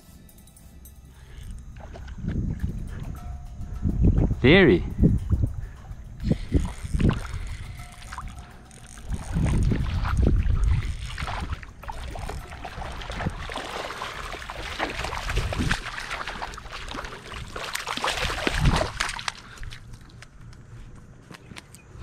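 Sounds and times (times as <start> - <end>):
water sloshing underfoot: 1.3 - 3.0, 5.6 - 20.8
wind buffeting microphone: 1.5 - 19.9.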